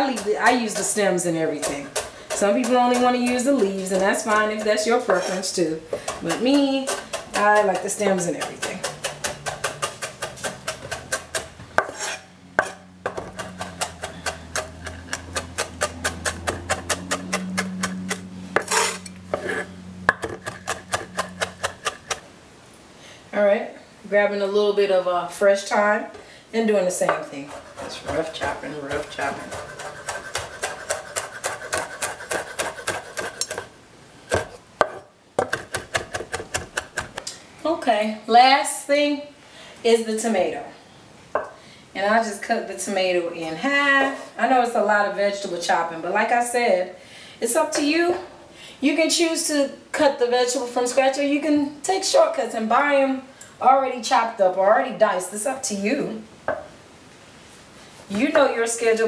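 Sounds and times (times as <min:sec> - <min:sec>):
knife chopping on wooden board: 0:06.1 - 0:19.5, 0:20.1 - 0:22.2, 0:27.1 - 0:33.7, 0:34.3 - 0:37.2.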